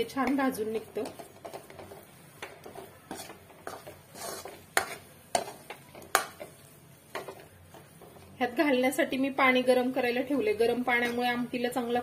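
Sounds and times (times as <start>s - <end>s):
ladle scraping paste in pan: 0.2s - 8.4s.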